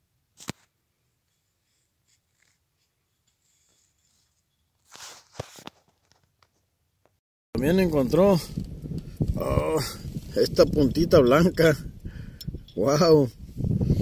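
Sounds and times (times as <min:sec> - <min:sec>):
brief rubbing scrape: 0:01.3 - 0:05.8.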